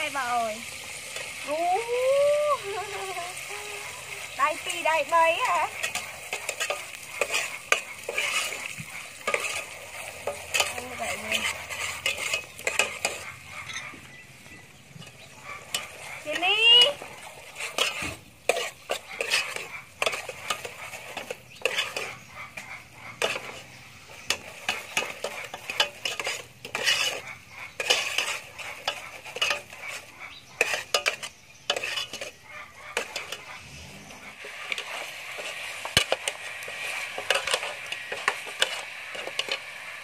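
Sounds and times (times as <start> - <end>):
steady hiss: 0.0 - 13.1, 33.6 - 40.0
metal ladle scraping metal pot: 2.7 - 13.9, 14.9 - 40.0.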